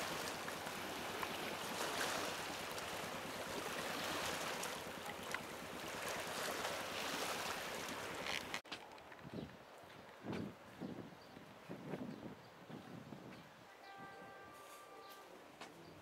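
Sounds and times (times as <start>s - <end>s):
small waves washing on rocks: 0.0s - 8.6s
wind: 0.0s - 16.0s.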